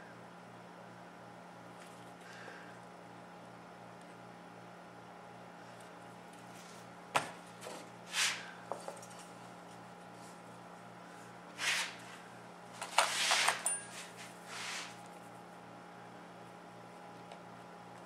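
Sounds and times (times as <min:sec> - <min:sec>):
steady low hum: 0:00.0 - 0:18.0
brushing and scraping: 0:07.7 - 0:08.5, 0:11.5 - 0:15.4.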